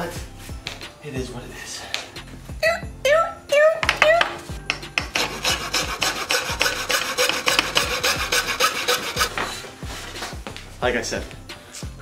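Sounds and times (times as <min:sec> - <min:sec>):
hacksaw cutting trim: 0:04.7 - 0:09.6.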